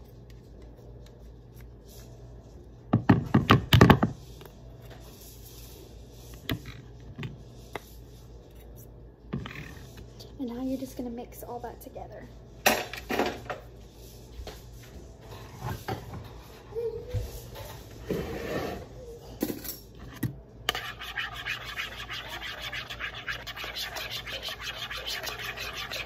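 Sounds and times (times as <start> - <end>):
utensil scraping plastic bowl: 20.7 - 26.0.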